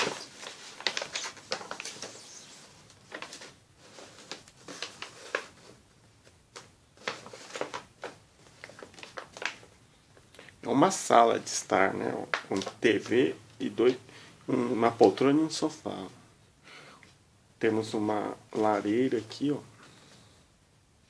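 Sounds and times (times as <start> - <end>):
paper rustling and crackling: 0.0 - 9.8, 12.2 - 14.0.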